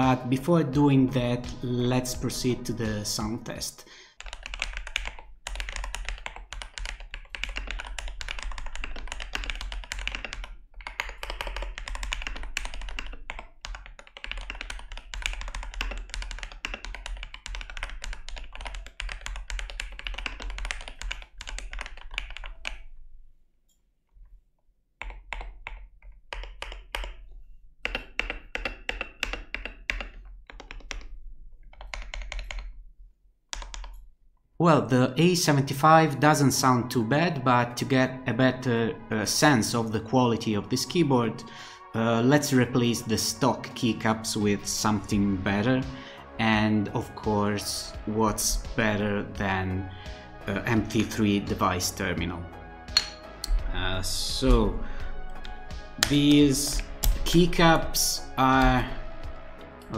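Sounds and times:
keyboard typing clacks: 4.1 - 22.8, 25.0 - 32.7, 33.5 - 34.0.

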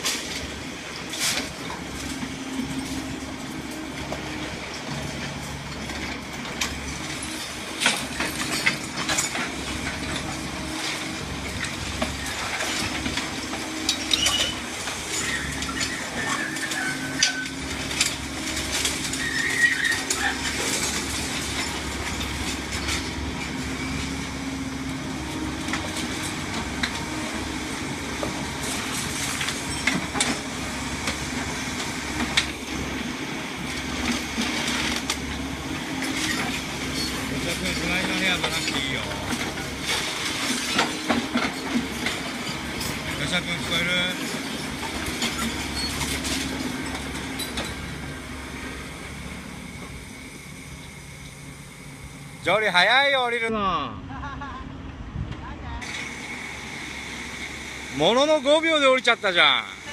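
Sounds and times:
excavator engine hum: 0.0 - 59.9
short metallic squeals: 14.0 - 17.7, 19.0 - 20.6, 45.3 - 46.4.

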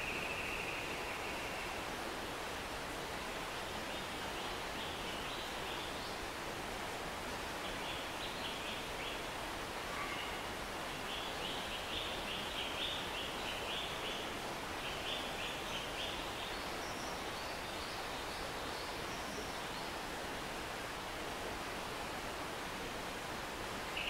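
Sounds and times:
stream rushing: 0.0 - 24.0.

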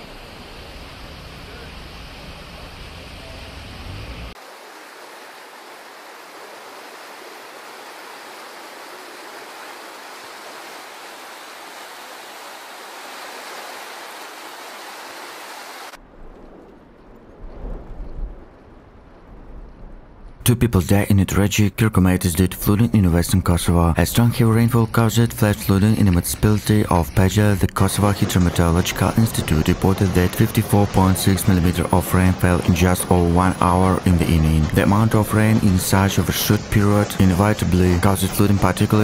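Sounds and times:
rushing floodwater hiss: 0.0 - 16.0, 22.7 - 39.0
low rumbling: 16.0 - 39.0.

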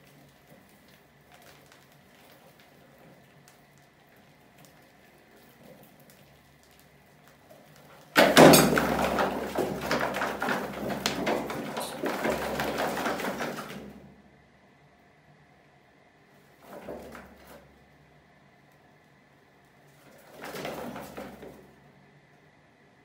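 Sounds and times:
wire fan guard clattering on bucket: 8.1 - 14.0, 20.2 - 21.6
rattling and scraping: 8.2 - 14.0.

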